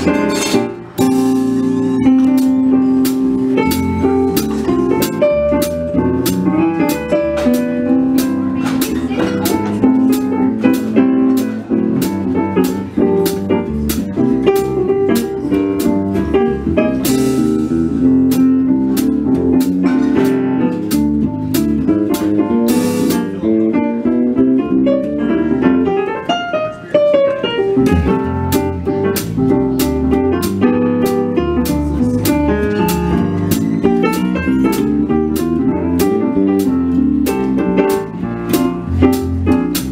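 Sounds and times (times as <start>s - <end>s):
piano playing swing chords: 0.0s - 39.9s
walking bass line: 27.8s - 39.9s.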